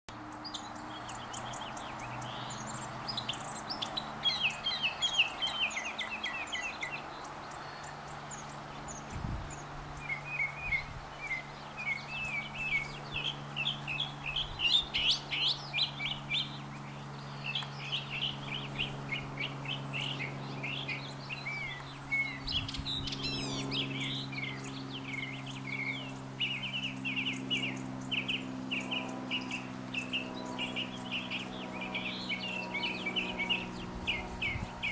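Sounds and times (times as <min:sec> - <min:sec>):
mockingbird singing: 0:00.1 - 0:34.9.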